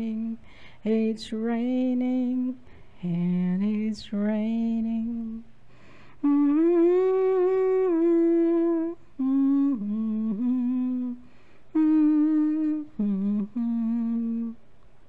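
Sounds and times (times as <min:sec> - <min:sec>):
woman humming: 0:00.0 - 0:00.4, 0:06.2 - 0:14.6.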